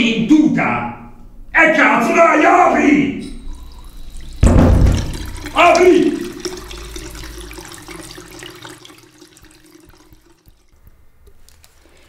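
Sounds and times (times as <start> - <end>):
tap water running into sink: 3.3 - 12.0.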